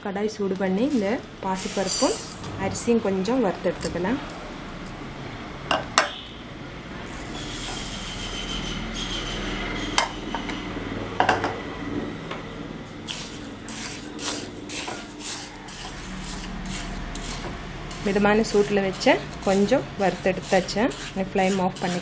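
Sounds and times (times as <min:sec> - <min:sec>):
grains scraping against a pan: 0:00.8 - 0:02.4, 0:07.1 - 0:09.2, 0:13.0 - 0:22.0.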